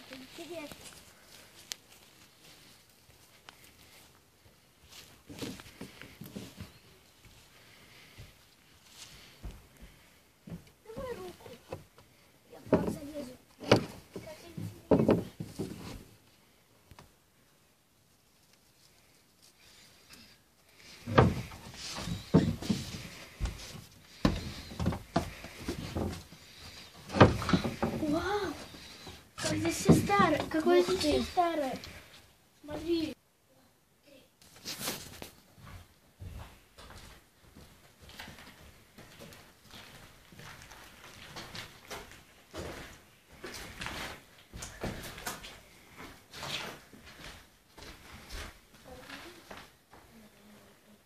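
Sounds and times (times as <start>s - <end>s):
footsteps on wooden floorboards: 4.9s - 8.4s, 9.0s - 16.2s, 20.9s - 32.1s, 35.5s - 50.2s.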